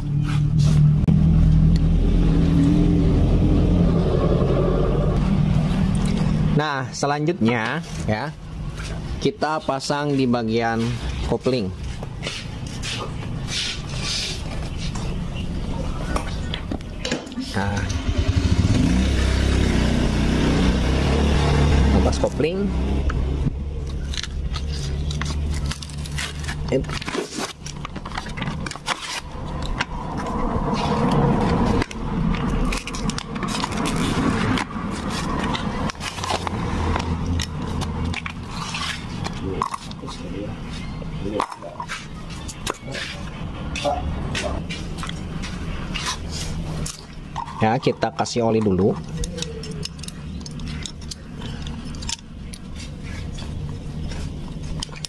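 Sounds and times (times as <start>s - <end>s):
low engine hum: 0.0s - 6.6s, 29.2s - 39.6s
paper and plastic bag crinkling: 23.9s - 30.3s.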